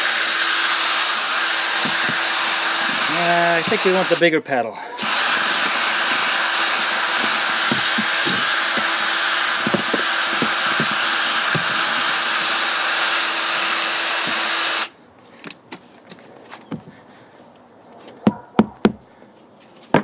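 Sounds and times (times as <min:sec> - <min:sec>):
electric drill mixing slurry: 0:00.0 - 0:04.2, 0:05.0 - 0:14.9.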